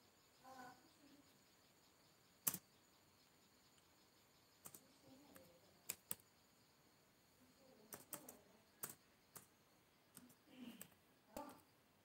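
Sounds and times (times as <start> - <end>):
faint sharp clicks: 2.4 - 2.7, 4.6 - 6.3, 10.1 - 11.6
faint low voice murmur: 10.2 - 11.7.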